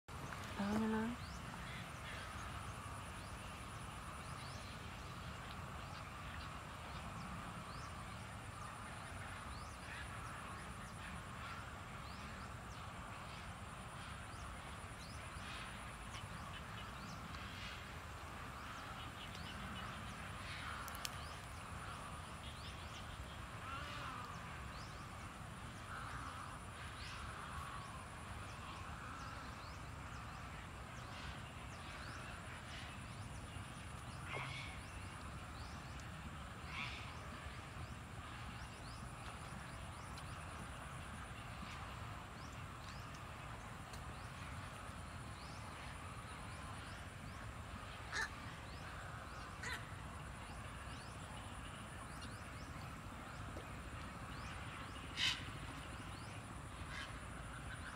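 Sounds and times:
flock of birds calling: 0:48.0 - 0:50.0.

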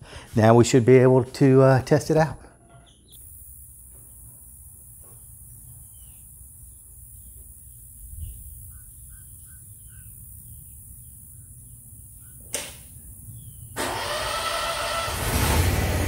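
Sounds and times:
birds chirping: 0:02.3 - 0:13.8.

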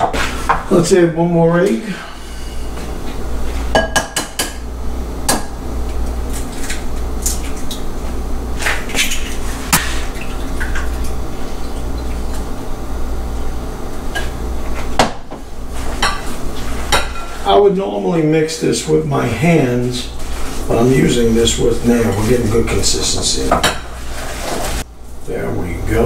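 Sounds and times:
steady low hum: 0:00.0 - 0:26.0
glass bowls clinking: 0:03.7 - 0:04.6.

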